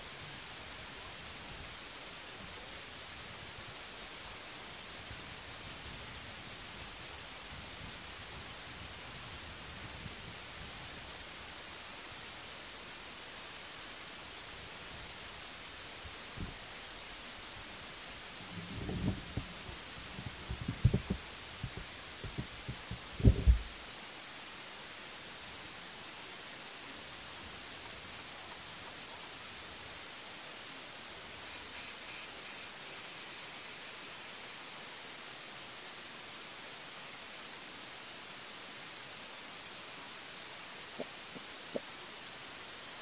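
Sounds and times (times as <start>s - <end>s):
steady hiss: 0.0s - 43.0s
low muffled thumps: 18.8s - 23.8s.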